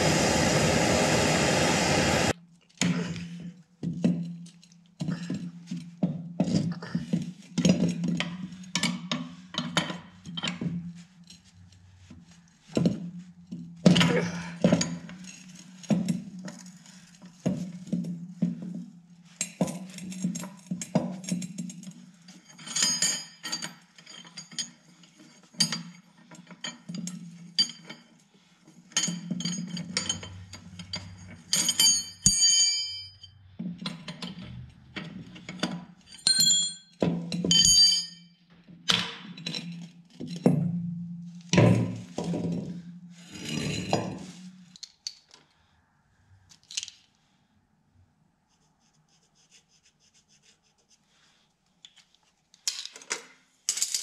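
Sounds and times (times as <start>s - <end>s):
steel tools clanking: 28.9s - 38.3s.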